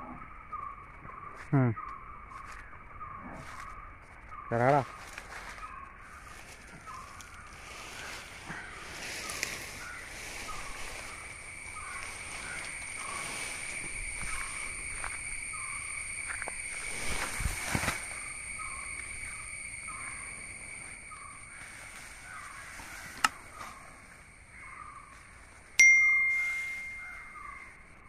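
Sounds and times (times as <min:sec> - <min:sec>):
high insect drone: 0:00.0 - 0:28.0
short chirp: 0:25.8 - 0:27.4.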